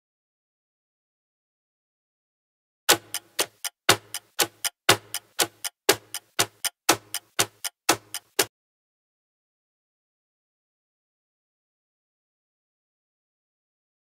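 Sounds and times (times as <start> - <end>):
countdown ticking: 2.9 - 8.5.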